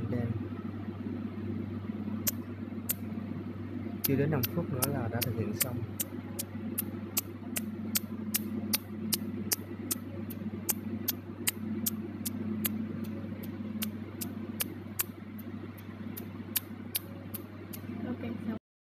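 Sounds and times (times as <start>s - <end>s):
low machine hum: 0.0s - 18.6s
laser pulses snapping: 2.2s - 3.1s, 4.0s - 15.2s, 16.1s - 17.9s.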